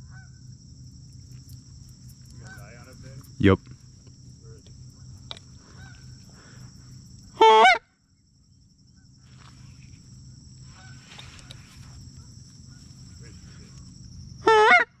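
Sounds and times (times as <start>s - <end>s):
faint distant goose honks: 0.0s - 0.4s, 2.3s - 3.6s, 4.5s - 6.7s, 7.4s - 7.9s, 10.6s - 13.7s, 14.4s - 15.0s
goose honk: 2.4s - 2.9s, 7.4s - 7.9s, 10.8s - 11.2s, 14.4s - 15.0s.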